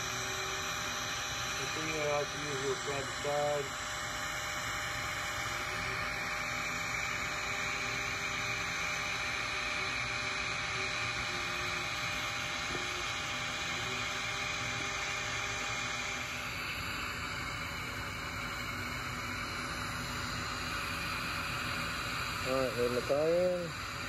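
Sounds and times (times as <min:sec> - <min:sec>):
welding arc hissing: 0:01.6 - 0:03.7, 0:22.4 - 0:23.7.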